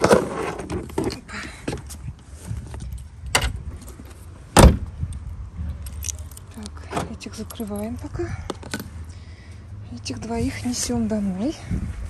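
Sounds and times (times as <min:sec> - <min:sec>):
car door shutting: 0:04.6 - 0:04.9.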